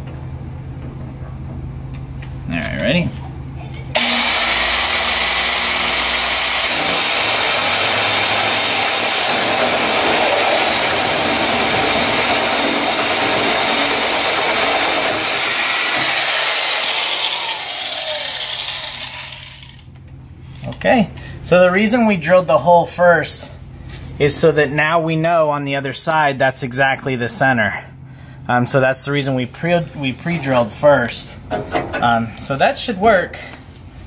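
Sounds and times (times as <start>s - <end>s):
drill hole saw cutting metal: 4.0s - 19.8s.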